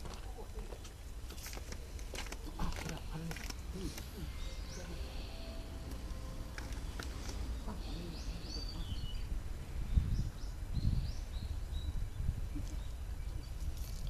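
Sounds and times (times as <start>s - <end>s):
low outdoor rumble: 0.0s - 14.0s
small birds chirping: 0.0s - 14.0s.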